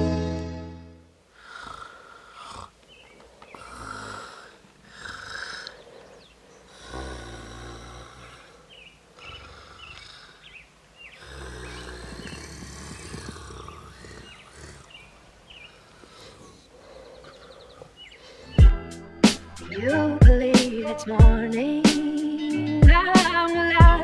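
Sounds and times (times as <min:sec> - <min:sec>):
person snoring: 0:01.4 - 0:02.8, 0:03.5 - 0:10.5, 0:11.2 - 0:15.1, 0:15.8 - 0:18.6.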